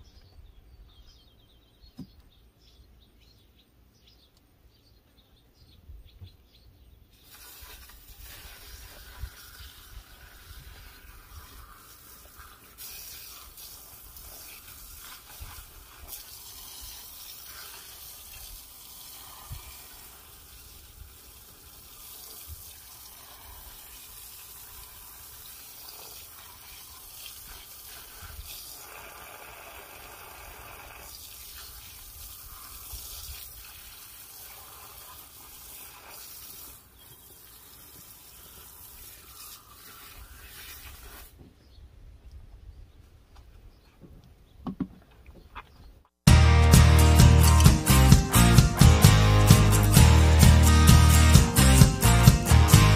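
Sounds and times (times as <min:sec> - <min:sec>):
hose water splashing on tyre: 0:07.1 - 0:41.4.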